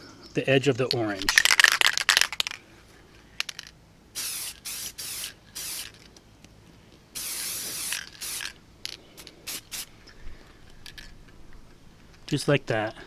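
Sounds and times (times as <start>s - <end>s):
spray paint can hissing: 3.4s - 6.1s, 7.2s - 9.9s.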